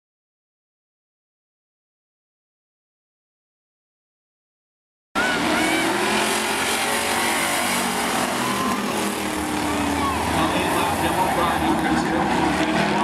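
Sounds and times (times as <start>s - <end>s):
race car engines running: 5.2s - 13.0s
tire squeals: 5.2s - 13.0s.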